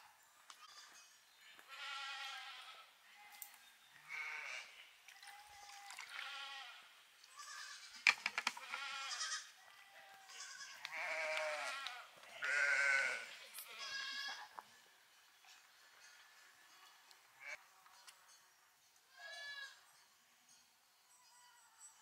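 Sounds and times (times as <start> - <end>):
sheep and goats bleating: 0.6 - 14.6, 15.4 - 17.7, 19.1 - 19.9.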